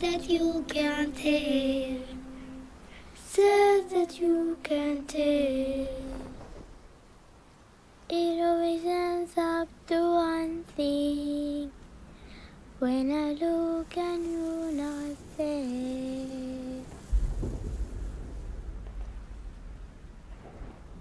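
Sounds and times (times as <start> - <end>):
child singing slow melody: 0.0 - 6.6, 8.0 - 11.8, 12.8 - 17.1.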